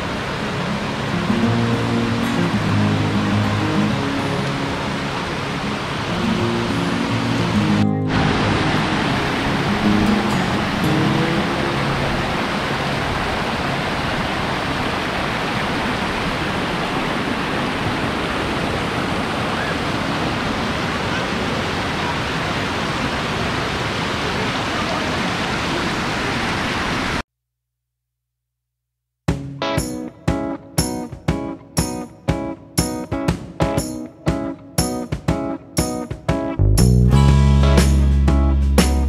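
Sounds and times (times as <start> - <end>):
water pouring over terraces: 0.0 - 27.2.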